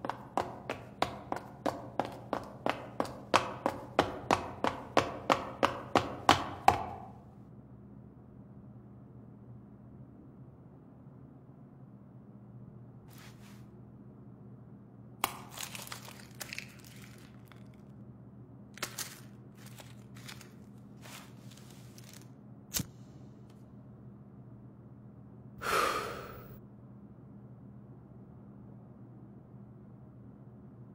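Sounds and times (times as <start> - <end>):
soft rustles: 13.1 - 13.7, 18.8 - 22.3
crinkling cellophane and paper: 15.2 - 17.9, 18.8 - 22.3
long breath out: 25.6 - 26.6.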